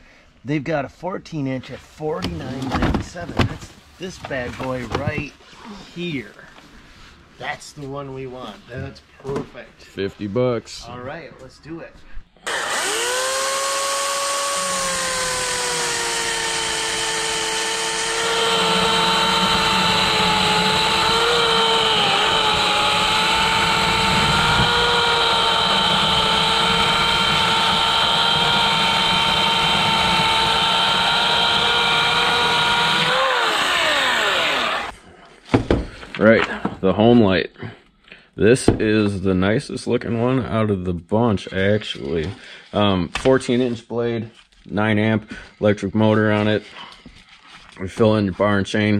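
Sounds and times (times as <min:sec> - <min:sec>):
chainsaw cutting log: 0:12.4 - 0:35.0
electric chainsaw whine: 0:12.4 - 0:35.0.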